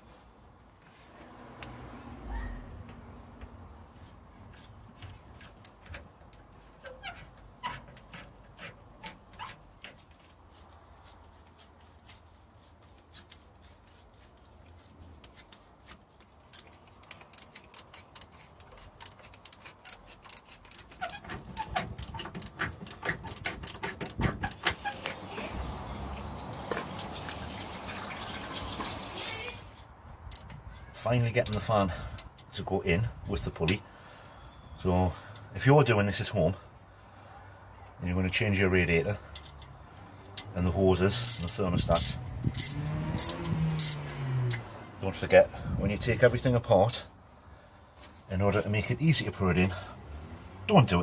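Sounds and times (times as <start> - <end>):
water pouring from kettle: 25.7 - 29.2.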